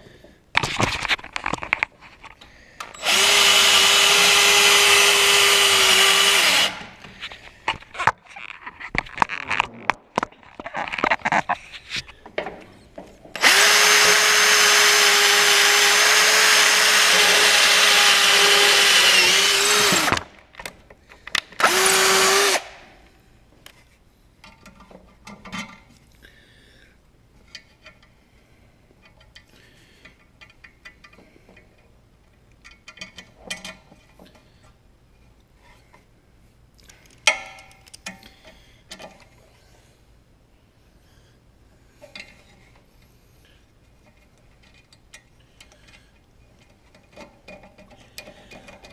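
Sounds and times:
power drill drilling metal: 0:02.9 - 0:07.0, 0:13.4 - 0:20.3, 0:21.6 - 0:22.8.

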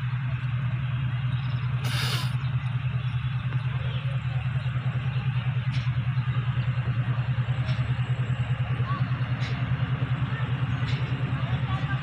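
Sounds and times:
diesel locomotive engine throbbing: 0:00.0 - 0:12.0
brief hiss: 0:01.8 - 0:02.4.

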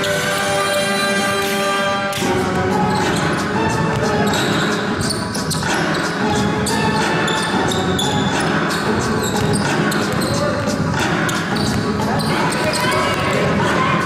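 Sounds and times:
crowd hubbub in large hall: 0:00.0 - 0:14.0
shoe squeaks: 0:02.8 - 0:13.3
basketball bouncing on court: 0:07.1 - 0:13.6.

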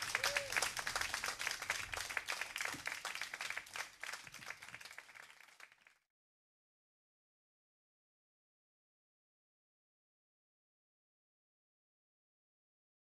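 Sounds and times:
audience applause: 0:00.0 - 0:06.0.

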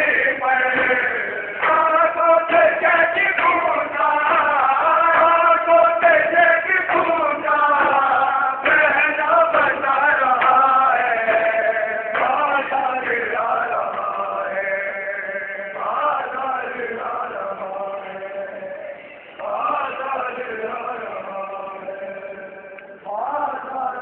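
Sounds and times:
men chanting in unison: 0:00.0 - 0:24.0.

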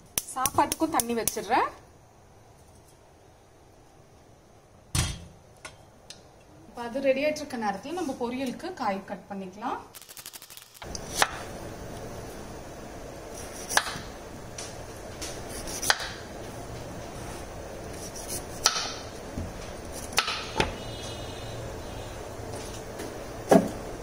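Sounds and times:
background hiss: 0:00.0 - 0:24.0
knife chopping on wooden board: 0:18.6 - 0:19.0.

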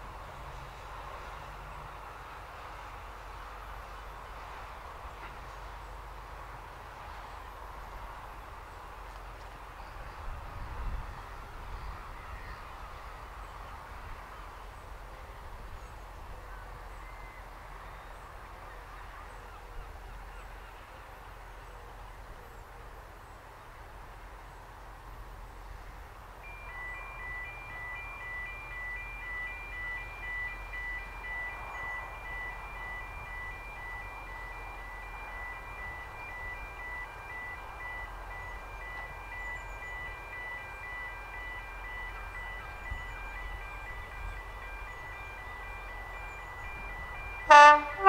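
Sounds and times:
distant diesel locomotive engine: 0:00.0 - 0:48.0.

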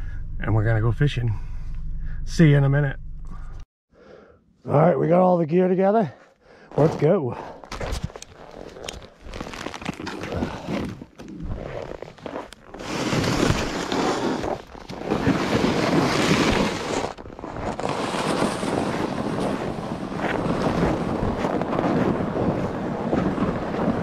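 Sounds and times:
footsteps crunching on snow: 0:06.7 - 0:24.0
sleds scraping over snow: 0:08.4 - 0:24.0.

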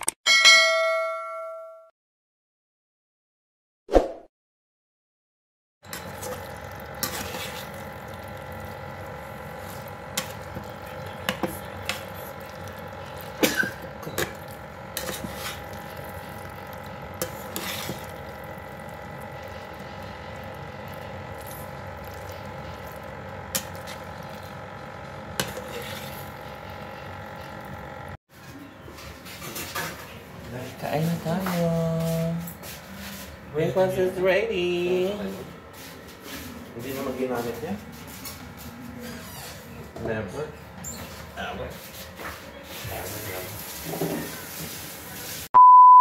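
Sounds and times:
spatula scraping a pan: 0:07.0 - 0:07.8, 0:13.4 - 0:16.3, 0:17.2 - 0:18.6, 0:25.4 - 0:26.4.

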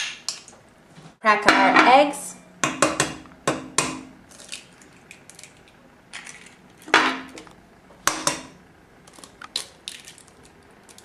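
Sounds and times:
eggs knocking on metal pot: 0:02.6 - 0:04.1, 0:08.0 - 0:08.6
eggshell crackling: 0:04.2 - 0:06.9, 0:09.0 - 0:11.0.

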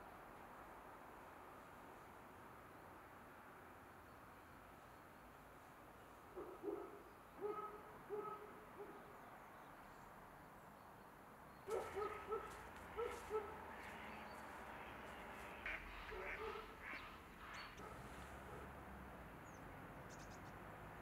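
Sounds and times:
faint background noise: 0:00.0 - 0:21.0
low hooting bird calls: 0:11.7 - 0:18.6.

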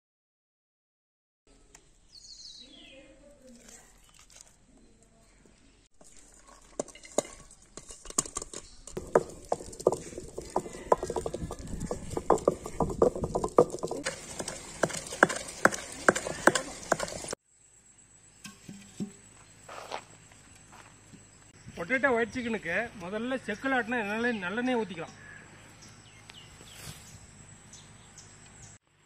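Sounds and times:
grinding stone knocking and grating: 0:06.0 - 0:17.4.

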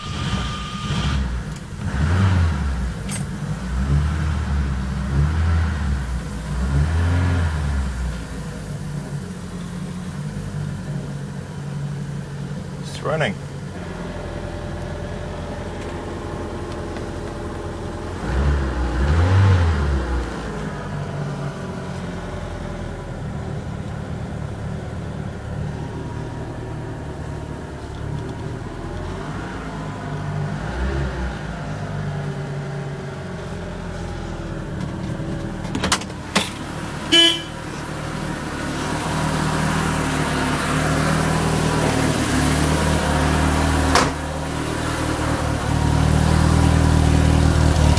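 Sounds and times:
car engine running: 0:00.0 - 0:47.9.

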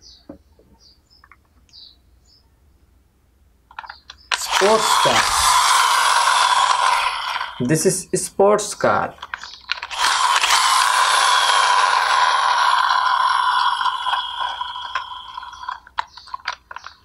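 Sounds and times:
small handling clicks: 0:03.7 - 0:05.3, 0:09.2 - 0:10.6, 0:14.9 - 0:17.0
toy car motor whirring: 0:03.8 - 0:17.0.

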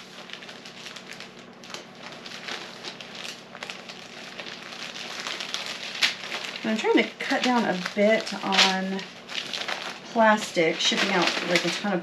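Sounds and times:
tissue paper rustling and crinkling: 0:00.0 - 0:12.0.

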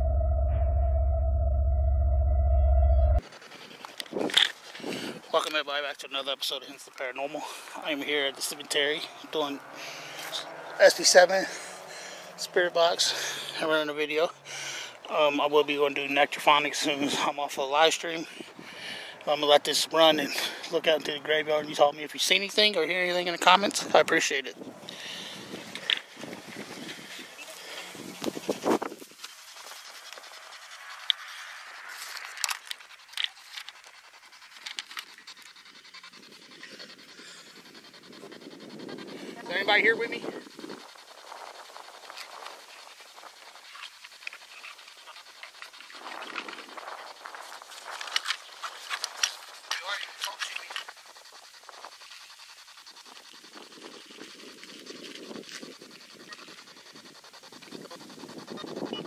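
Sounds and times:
sharp clicks and blips: 0:00.0 - 0:03.2.

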